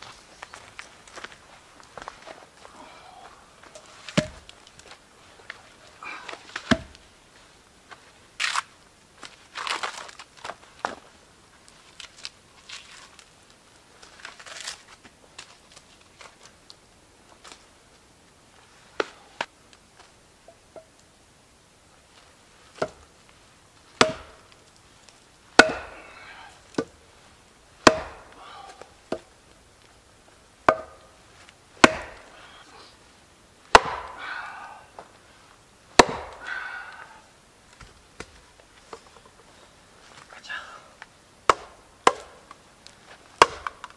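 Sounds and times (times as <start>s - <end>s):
wood crackling as handled: 0.0s - 40.4s, 41.0s - 43.9s
sharp knocks: 4.1s - 4.4s, 24.0s - 24.4s, 27.8s - 28.3s, 31.8s - 32.2s.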